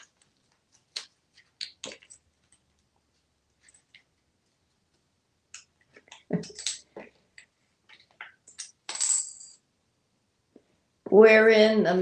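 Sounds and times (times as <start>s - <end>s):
coins clicking on countertop: 6.4s - 7.0s, 8.5s - 9.6s
coin ringing: 8.9s - 9.6s.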